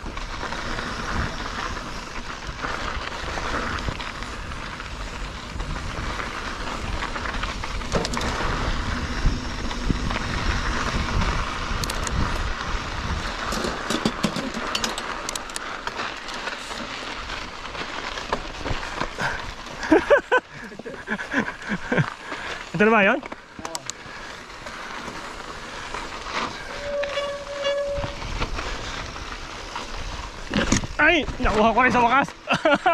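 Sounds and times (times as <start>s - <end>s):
bike rattling: 0.0s - 32.9s
mountain bike rolling on dirt trail: 0.0s - 32.9s
sharp clicks and knocks on rocks: 23.1s - 24.0s.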